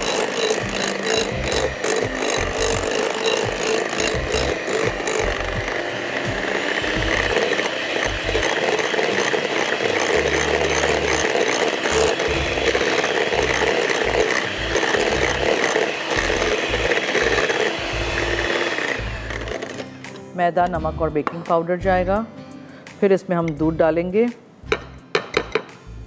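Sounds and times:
electric mixer running: 0.0 - 20.2.

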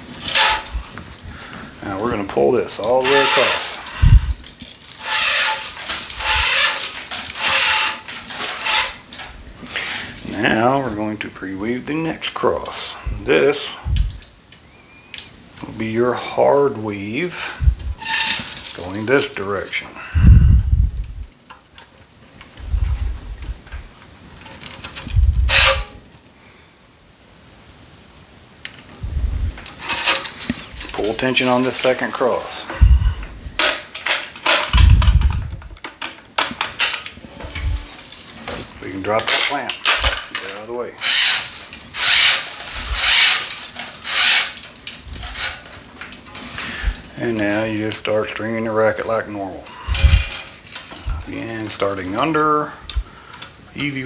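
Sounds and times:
handling rubbing rumbles: 0.0 - 11.1, 22.5 - 26.0, 28.9 - 35.8, 36.5 - 53.1
string rasping through racket strings: 0.2 - 1.0, 1.8 - 10.2
string zipping through: 3.0 - 4.4, 5.0 - 9.0, 41.0 - 45.6.

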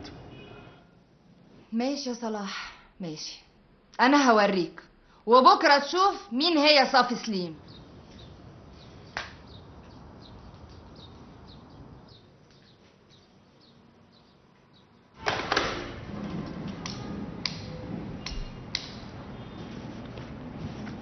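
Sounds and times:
room background noise: 0.0 - 21.0
faint birds chirping: 7.2 - 15.2.

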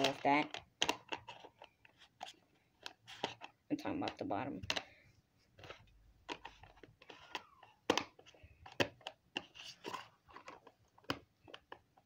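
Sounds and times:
plastic toy case clicking: 0.0 - 4.9, 5.6 - 9.5.

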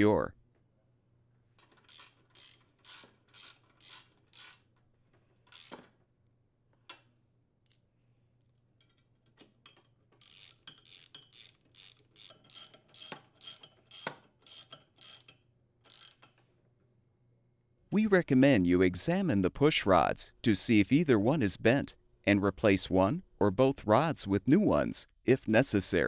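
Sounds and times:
ratchet driver clicking: 1.6 - 4.7, 5.5 - 5.9, 9.6 - 16.4.

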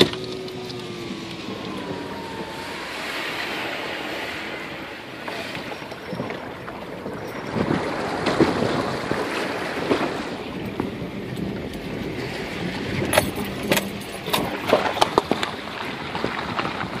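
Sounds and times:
water splashing around car: 0.0 - 17.0
tyres crunching over ice and gravel: 13.3 - 17.0.

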